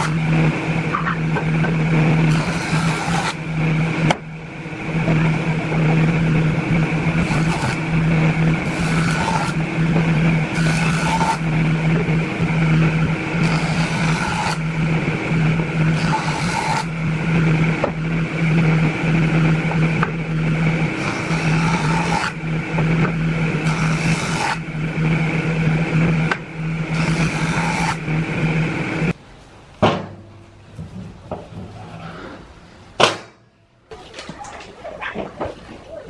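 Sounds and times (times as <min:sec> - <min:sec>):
jointer cutting wood: 0:00.0 - 0:29.2
jointer motor hum: 0:00.0 - 0:29.2
sharp wooden knock: 0:29.8 - 0:30.3.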